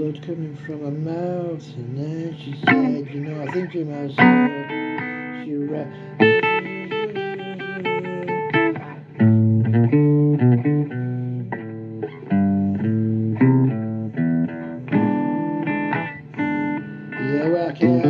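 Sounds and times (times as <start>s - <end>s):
blues guitar playing: 0.0s - 18.0s.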